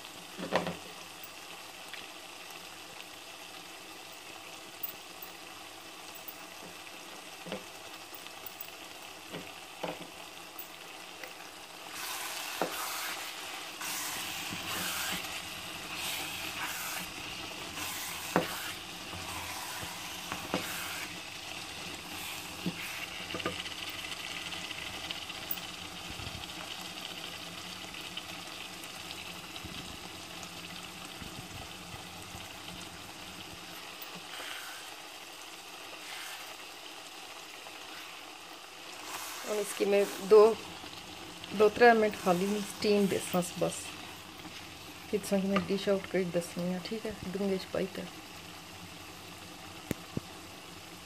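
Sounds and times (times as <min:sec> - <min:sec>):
curry sizzling in a pot: 0:00.0 - 0:51.0
wooden spoon stirring: 0:12.0 - 0:21.1, 0:39.0 - 0:40.7, 0:41.5 - 0:45.8.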